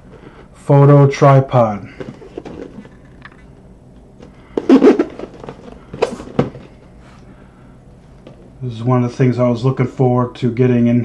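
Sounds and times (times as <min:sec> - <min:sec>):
cardboard box rubbing scrape: 0:04.6 - 0:06.6
sharp knocks on cardboard box: 0:04.6 - 0:06.7.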